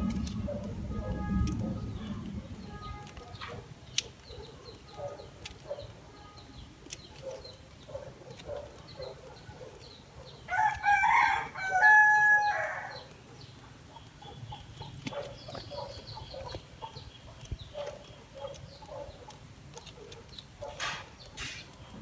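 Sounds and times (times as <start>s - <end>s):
pruning scissors clicking: 6.8s - 7.6s
rooster crowing: 10.5s - 13.0s
chickens clucking: 12.9s - 22.0s.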